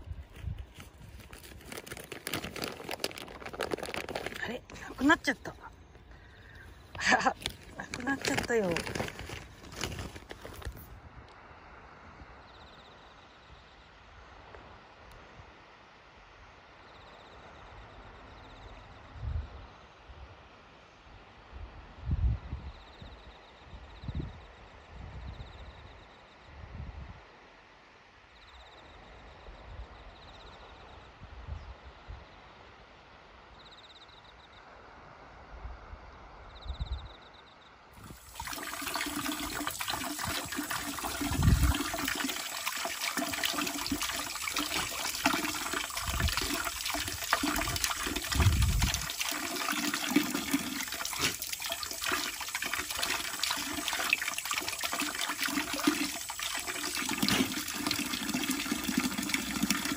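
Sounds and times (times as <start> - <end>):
faint outdoor ambience: 0.0 - 59.9
water pouring from tap: 38.0 - 59.9.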